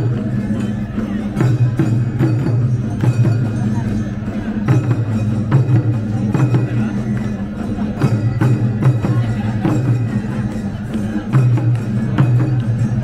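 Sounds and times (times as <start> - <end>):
wood-block percussion hits: 0.0 - 13.0.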